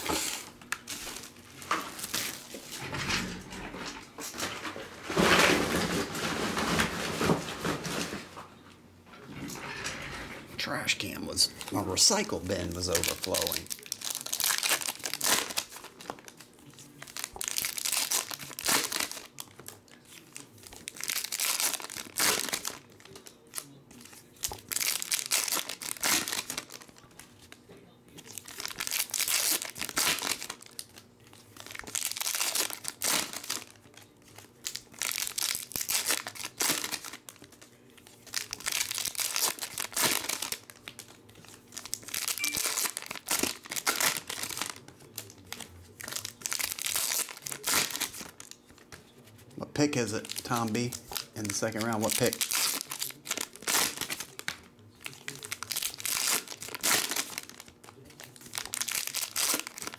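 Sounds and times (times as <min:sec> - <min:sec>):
foil wrappers crinkling and tearing: 0:00.0 - 0:02.8, 0:11.0 - 0:59.9.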